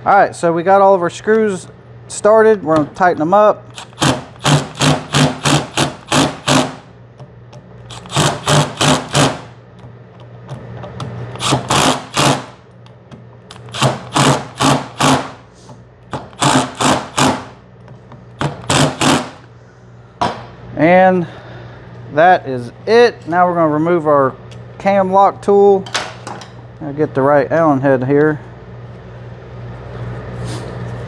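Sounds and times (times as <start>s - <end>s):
cordless power driver bursts: 3.7s - 6.9s, 7.9s - 9.5s, 11.4s - 12.6s, 13.6s - 15.4s, 16.4s - 17.6s, 18.6s - 19.5s.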